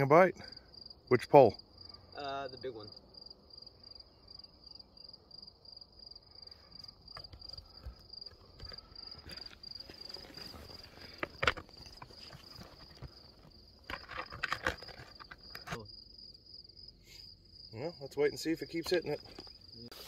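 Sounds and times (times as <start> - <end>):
cricket chirping: 0.0 - 20.0
footsteps on loose rock: 7.2 - 15.8.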